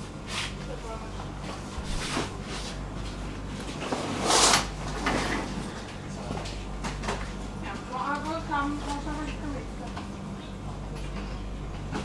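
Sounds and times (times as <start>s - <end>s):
electric train low hum: 0.0s - 12.0s.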